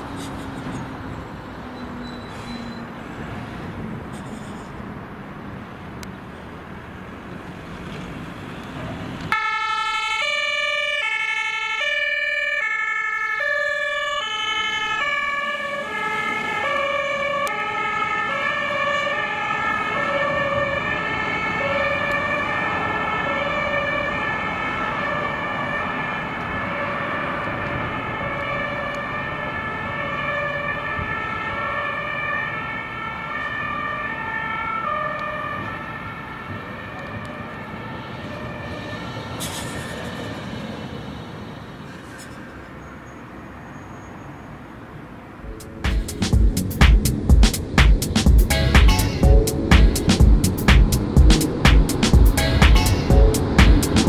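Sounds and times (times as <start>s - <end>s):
two-tone emergency siren: 9.3s - 39.6s, 51.1s - 54.0s.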